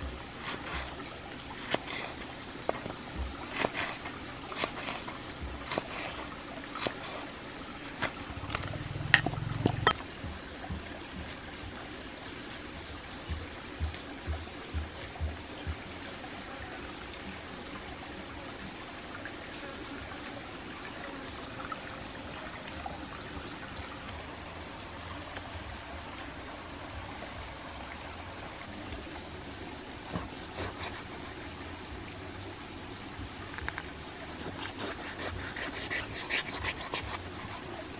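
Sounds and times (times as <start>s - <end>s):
stream water trickling: 0.0s - 37.9s
knife cutting raw meat: 0.4s - 1.0s, 1.6s - 7.3s, 30.1s - 31.3s, 34.4s - 37.7s.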